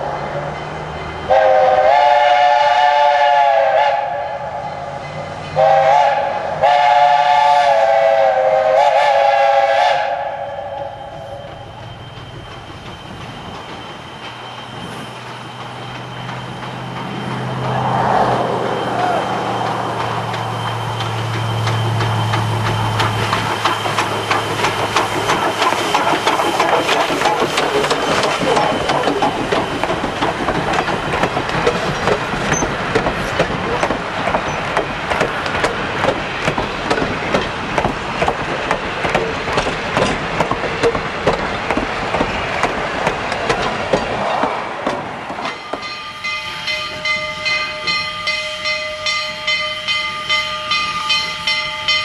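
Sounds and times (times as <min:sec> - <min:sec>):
steam hiss: 0:00.0 - 0:44.9
train wheels clanking on rails: 0:00.0 - 0:52.0
steam locomotive whistle blasts: 0:01.3 - 0:05.0, 0:05.6 - 0:12.0, 0:45.7 - 0:52.0.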